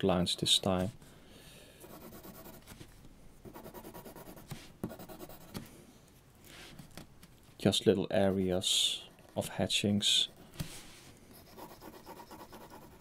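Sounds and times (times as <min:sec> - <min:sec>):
pencil scratching on paper: 0:01.8 - 0:02.7, 0:03.5 - 0:05.6, 0:10.1 - 0:13.0.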